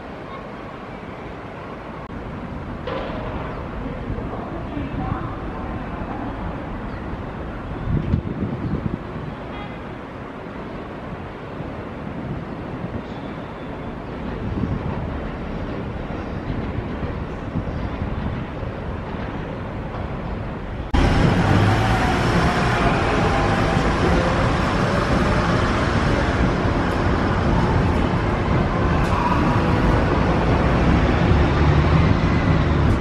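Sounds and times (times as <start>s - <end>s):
wind on microphone: 6.9s - 9.5s, 14.2s - 19.7s
road traffic passing: 19.4s - 33.0s.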